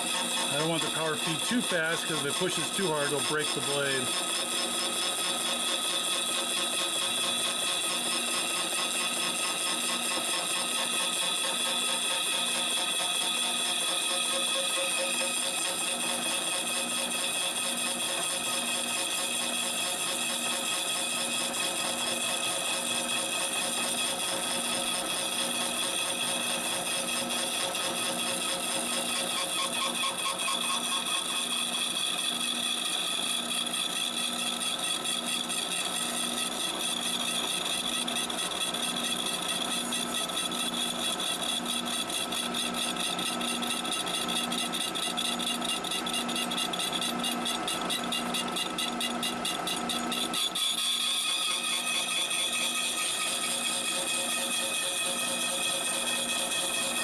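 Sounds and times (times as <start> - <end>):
saw cutting metal whine: 0.0 - 57.0.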